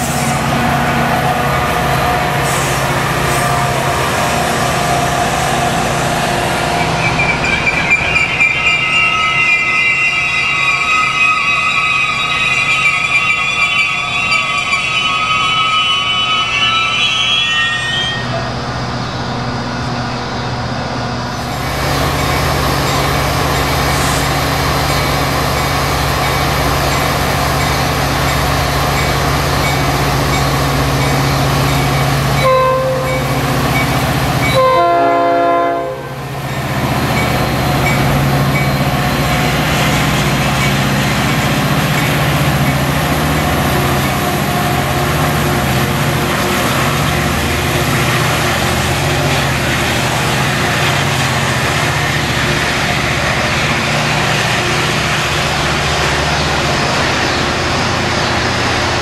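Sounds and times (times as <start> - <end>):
diesel locomotive engine drone: 0.0 - 59.0
train horn blasts: 32.3 - 33.4, 34.4 - 36.3.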